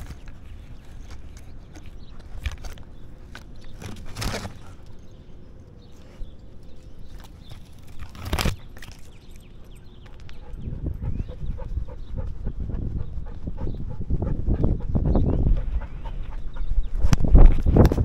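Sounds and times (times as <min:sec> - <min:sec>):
loud rustles of branches: 0:00.0 - 0:09.6
twigs scraping and crackling: 0:00.0 - 0:10.4.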